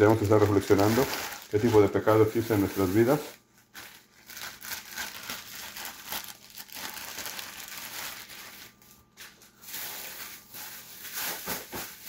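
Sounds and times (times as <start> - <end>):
plastic bags crinkling and rustling: 0.0 - 12.0.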